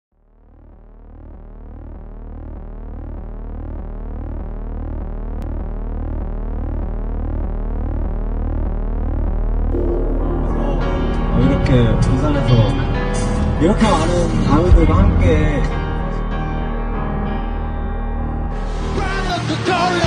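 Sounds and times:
low pulsing synth drone: 0:00.2 - 0:13.8
gliding synth tones: 0:09.7 - 0:13.0.

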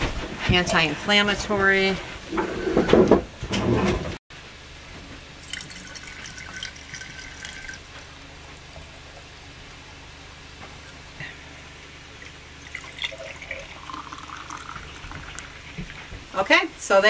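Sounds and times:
syrup trickling into glass jug: 0:05.4 - 0:07.8, 0:12.2 - 0:15.7.

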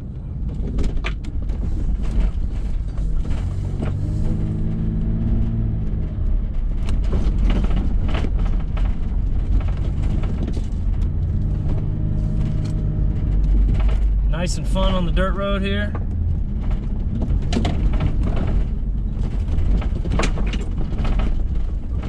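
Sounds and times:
vehicle road rumble and engine: 0:00.0 - 0:22.0
suspension knocks: 0:00.4 - 0:22.0.

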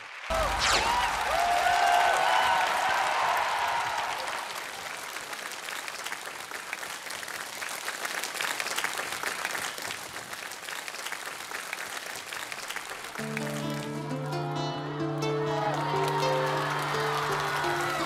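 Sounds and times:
audience applauding: 0:00.0 - 0:18.0
held chords of backing music: 0:13.2 - 0:18.0.

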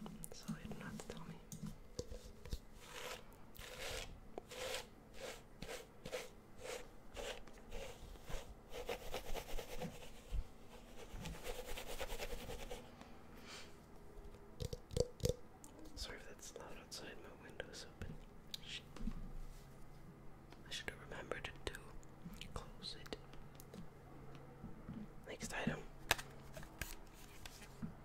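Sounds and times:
fingers scratching through hair: 0:02.8 - 0:12.8.

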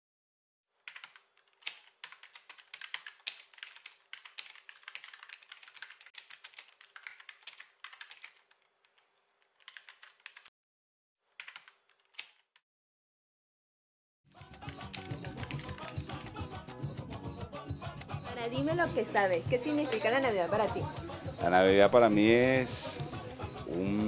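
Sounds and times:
computer keyboard typing: 0:00.8 - 0:10.5, 0:11.4 - 0:12.4, 0:14.4 - 0:16.5.

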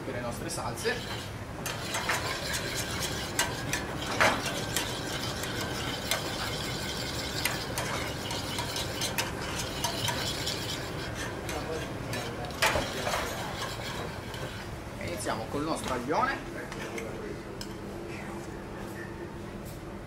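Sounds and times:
steady background noise: 0:00.0 - 0:20.0
metal spoon scraping a saucepan: 0:00.7 - 0:14.7.

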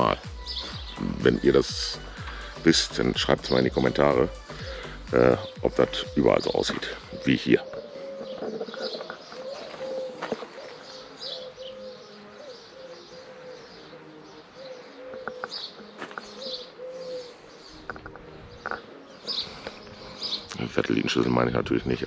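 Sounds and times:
doves cooing: 0:00.0 - 0:22.0.

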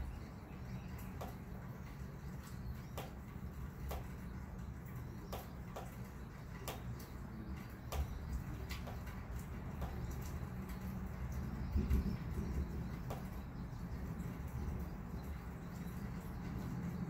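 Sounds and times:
low storm rumble: 0:06.9 - 0:17.0.

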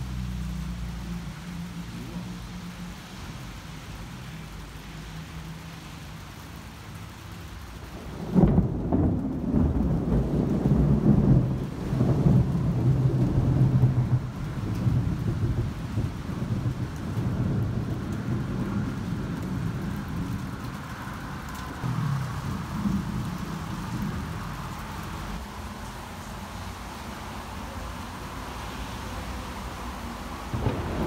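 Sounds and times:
thunder crack and rumble: 0:07.8 - 0:25.4, 0:30.4 - 0:31.0.

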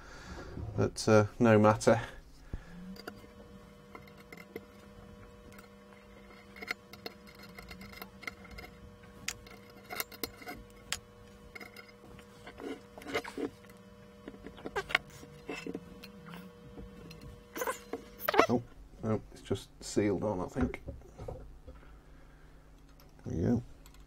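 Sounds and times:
faint steady hum: 0:00.0 - 0:24.0
metal parts clicking and knocking: 0:05.5 - 0:13.5, 0:22.8 - 0:24.0.

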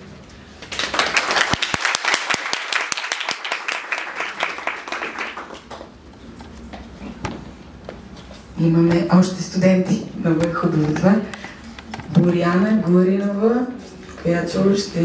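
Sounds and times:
audience applauding: 0:00.6 - 0:06.0.

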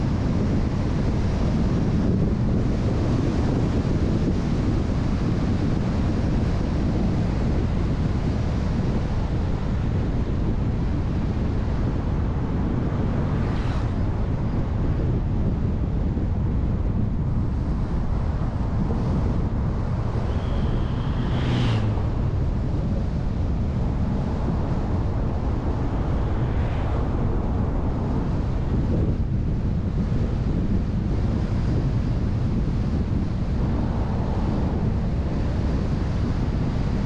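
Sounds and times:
car road and wind noise: 0:00.0 - 0:37.0
wind buffeting microphone: 0:00.0 - 0:37.0
short whooshes: 0:20.0 - 0:22.7.

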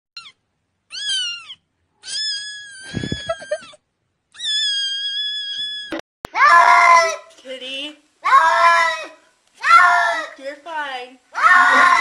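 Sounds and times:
kitten meowing: 0:00.2 - 0:06.0.

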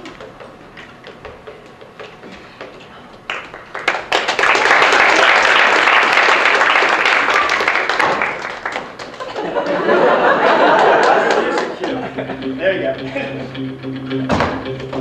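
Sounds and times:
audience applause: 0:03.3 - 0:12.0.

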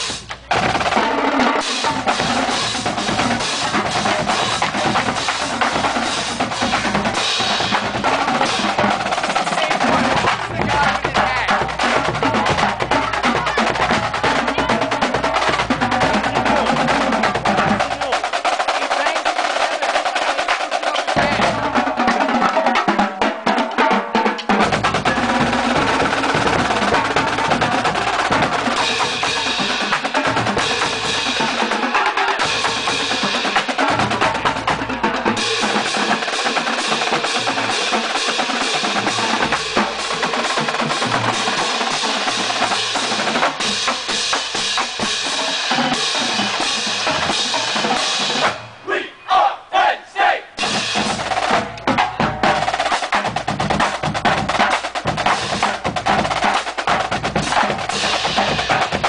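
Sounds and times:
snare drums rolling: 0:00.0 - 0:48.9, 0:50.5 - 0:59.0
low drums: 0:00.0 - 0:49.7, 0:50.4 - 0:59.0.

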